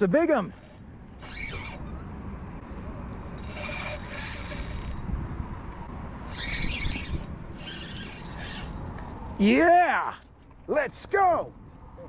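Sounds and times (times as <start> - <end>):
fishing reel buzzing: 0.5 - 1.8, 3.4 - 5.0, 6.2 - 9.4.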